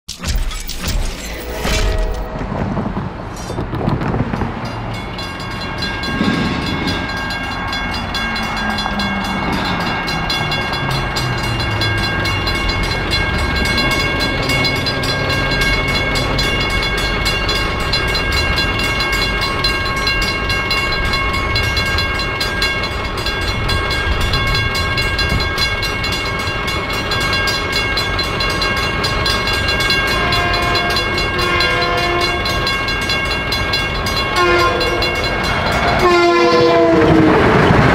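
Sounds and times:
low rumble: 0:00.3 - 0:18.4
crossing bell ringing: 0:01.2 - 0:37.9
train horn blasts: 0:29.8 - 0:32.8, 0:34.1 - 0:37.8.

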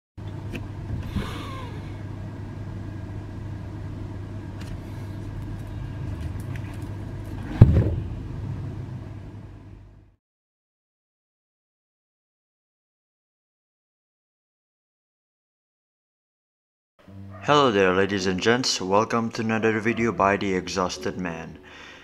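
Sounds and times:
low background rumble: 0:00.3 - 0:10.2
loud thump: 0:07.5 - 0:08.1.

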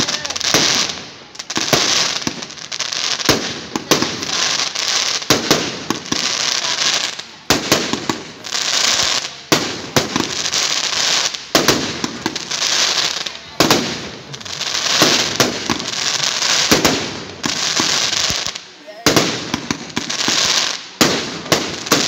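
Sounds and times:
firework crackling: 0:00.0 - 0:22.0.

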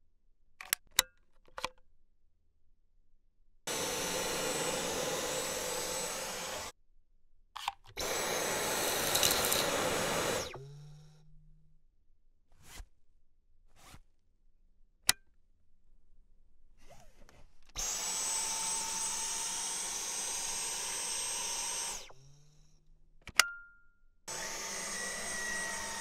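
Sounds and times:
vacuum cleaner whining: 0:03.7 - 0:06.7, 0:08.0 - 0:11.1, 0:17.8 - 0:22.6, 0:24.3 - 0:26.0.

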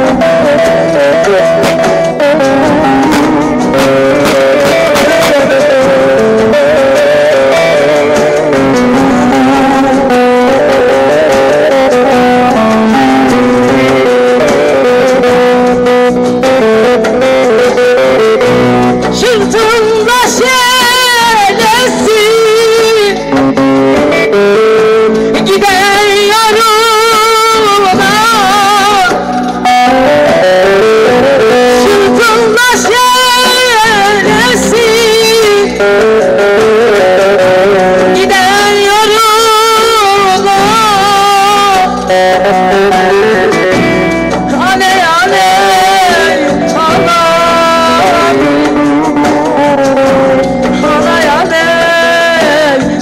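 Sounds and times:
young woman singing: 0:00.0 - 0:15.5, 0:17.6 - 0:53.0
backing music: 0:00.0 - 0:53.0
electronic keyboard melody: 0:00.0 - 0:53.0.

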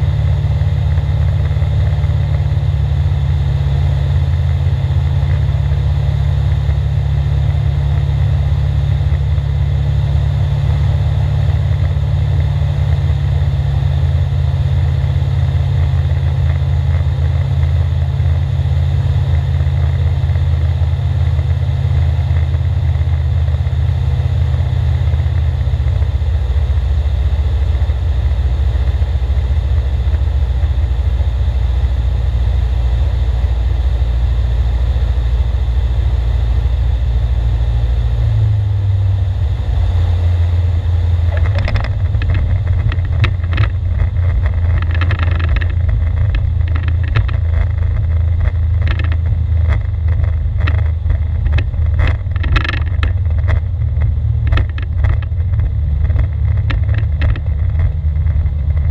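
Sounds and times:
aircraft engine drone in cockpit: 0:00.0 - 0:58.9
clicks and rattles on runway: 0:14.8 - 0:18.5, 0:41.2 - 0:58.9.

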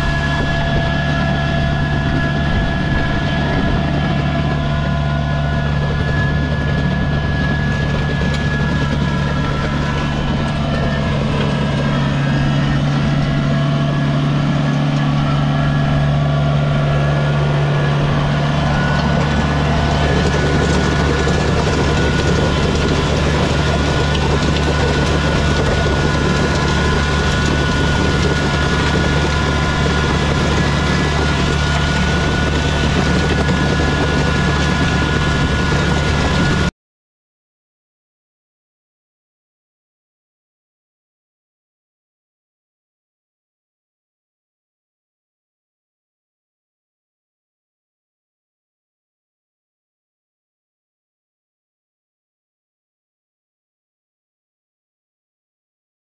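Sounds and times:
tractor diesel engine running: 0:00.0 - 0:36.7
gravel scraping and grinding: 0:18.0 - 0:36.7.

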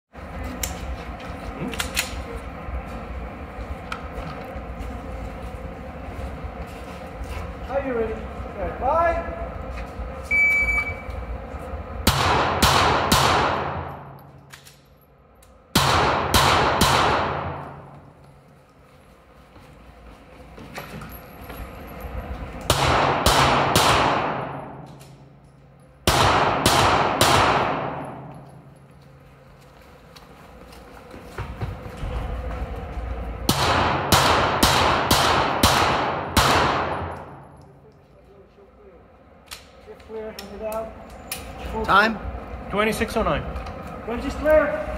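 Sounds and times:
shot timer beep: 0:10.3 - 0:11.1
pistol shots echoing: 0:12.1 - 0:14.1, 0:15.8 - 0:17.6, 0:22.7 - 0:24.9, 0:26.1 - 0:28.3, 0:33.5 - 0:37.4
handgun shots echoing: 0:33.5 - 0:37.4.

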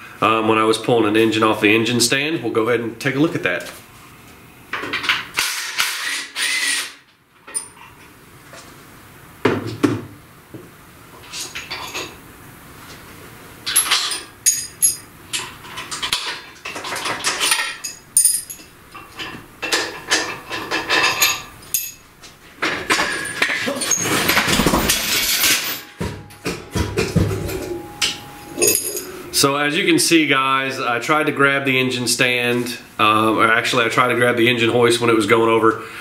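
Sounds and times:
metal tools clanking: 0:11.2 - 0:12.2, 0:13.6 - 0:29.6
engine hoist crashing over: 0:22.6 - 0:29.1.

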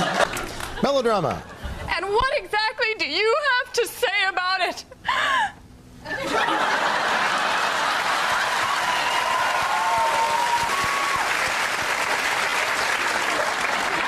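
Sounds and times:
studio audience applauding: 0:06.6 - 0:14.0.

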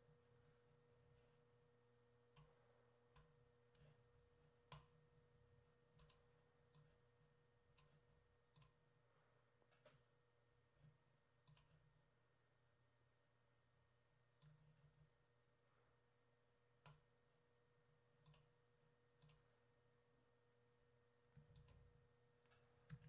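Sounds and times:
faint steady hum: 0:00.0 - 0:23.0
computer mouse clicks: 0:02.3 - 0:04.0, 0:04.7 - 0:05.0, 0:06.0 - 0:07.0, 0:07.7 - 0:08.8, 0:11.4 - 0:11.9, 0:14.4 - 0:14.8, 0:16.8 - 0:17.1, 0:18.2 - 0:18.5, 0:19.2 - 0:19.5, 0:21.4 - 0:21.9.

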